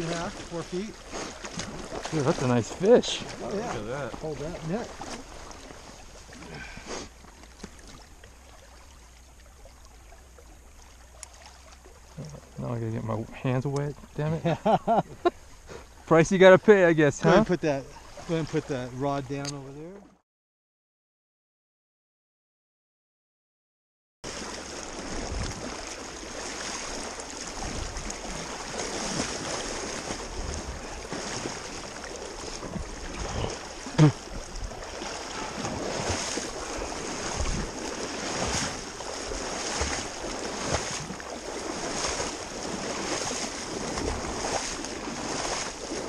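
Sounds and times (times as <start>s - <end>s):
water sloshing around wading legs: 0.0s - 16.1s, 16.7s - 20.1s, 24.3s - 46.0s
wind on microphone: 25.0s - 25.8s, 26.8s - 31.8s, 32.4s - 46.0s.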